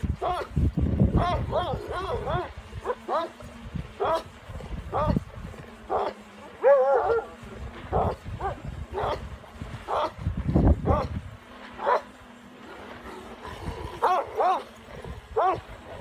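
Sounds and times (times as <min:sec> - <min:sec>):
dogs barking: 0:05.9 - 0:07.3, 0:07.9 - 0:09.3, 0:09.9 - 0:10.2, 0:11.8 - 0:12.2, 0:14.0 - 0:14.8, 0:15.4 - 0:15.7.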